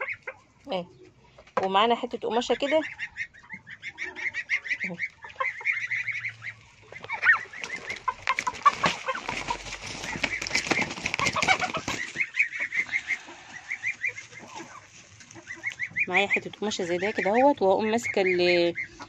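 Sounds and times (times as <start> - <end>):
turkey calling: 0.0 - 1.6, 2.2 - 19.0
scuffling handling noise: 7.0 - 12.3.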